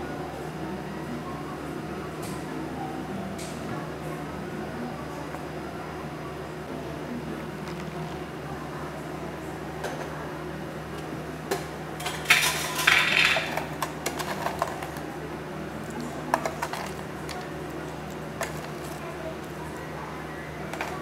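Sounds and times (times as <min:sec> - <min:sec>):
steady low hum: 0:00.0 - 0:21.0
clinking cafe ware: 0:11.6 - 0:15.0.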